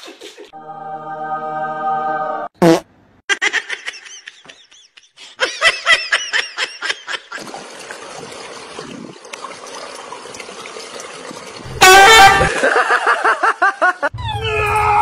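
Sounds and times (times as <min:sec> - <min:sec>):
swimming pool water noise: 0:07.2 - 0:13.7.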